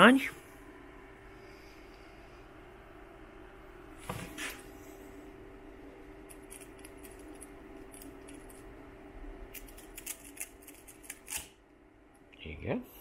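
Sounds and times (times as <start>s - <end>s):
printer hum: 0.0s - 9.5s.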